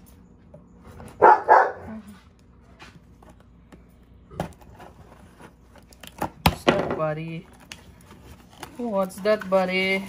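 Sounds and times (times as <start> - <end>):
dog barking: 1.2 - 2.0.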